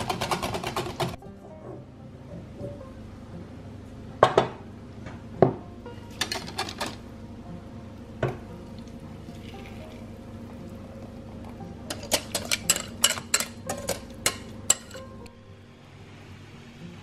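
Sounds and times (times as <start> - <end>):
soft background music: 0.0 - 17.0
kitchenware clinks and taps: 11.9 - 15.1.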